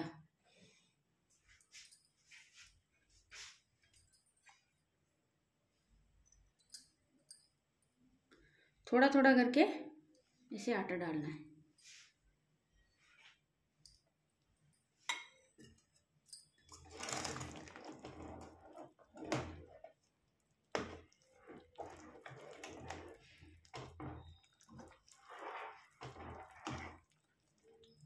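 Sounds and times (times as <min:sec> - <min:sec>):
spoon scraping and sloshing in pot: 0:15.0 - 0:28.0.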